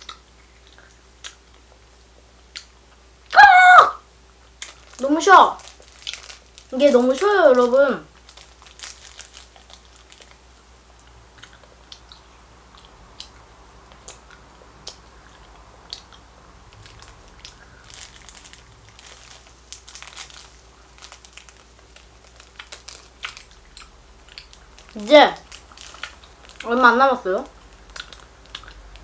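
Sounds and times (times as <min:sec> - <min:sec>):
plastic wrapper crinkling: 0:04.5 - 0:10.4, 0:16.7 - 0:29.0
chewing hard candy: 0:04.5 - 0:26.8, 0:27.5 - 0:29.0.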